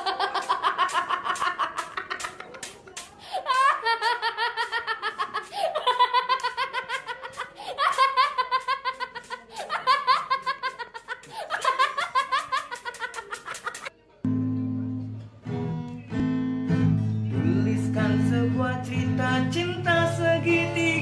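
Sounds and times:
high-pitched laughter: 0:00.0 - 0:02.7, 0:03.3 - 0:13.9.

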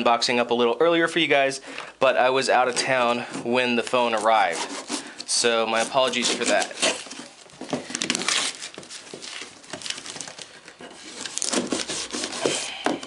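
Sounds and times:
knife slicing packing tape: 0:05.8 - 0:07.3, 0:08.1 - 0:09.4, 0:11.0 - 0:12.8
crinkling plastic and tape: 0:06.0 - 0:13.0.

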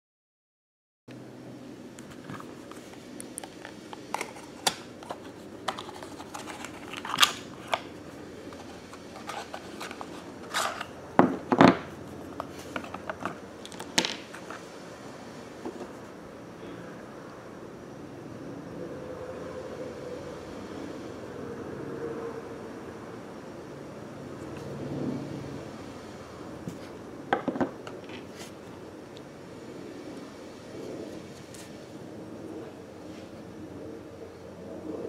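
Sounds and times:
cardboard box being opened: 0:04.2 - 0:07.9, 0:08.5 - 0:10.9.

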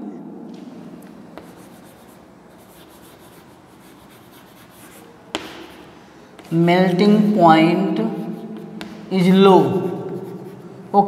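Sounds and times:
chalk tapping on board: 0:01.4 - 0:06.6, 0:08.4 - 0:09.1
chalk scratching on chalkboard: 0:01.4 - 0:06.7, 0:08.1 - 0:09.1, 0:09.7 - 0:10.8.

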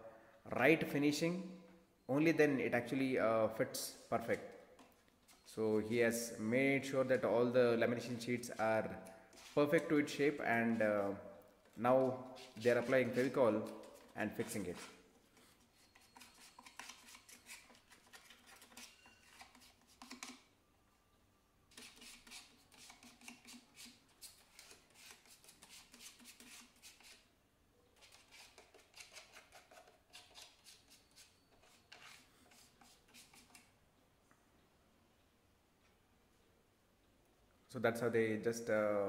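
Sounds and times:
spreader scraping glue on wood: 0:11.9 - 0:20.4, 0:21.7 - 0:27.3, 0:28.0 - 0:33.7.

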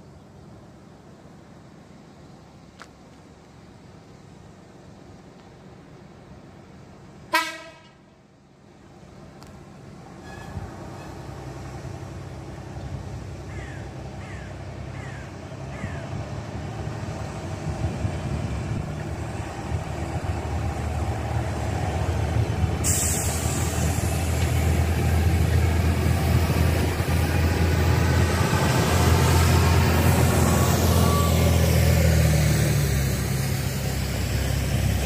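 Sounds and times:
train diesel engine droning: 0:00.0 - 0:35.0
high hiss: 0:22.7 - 0:27.5.

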